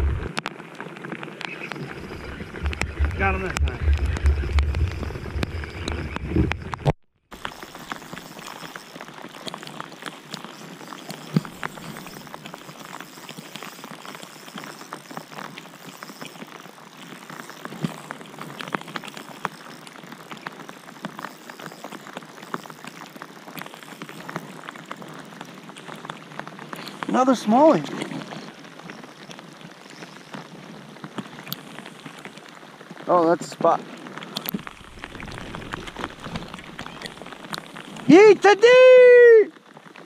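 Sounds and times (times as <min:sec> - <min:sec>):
wind rumble on microphone: 0:00.0 - 0:00.5, 0:01.6 - 0:06.9, 0:34.5 - 0:37.4
rain falling on water: 0:00.0 - 0:40.0.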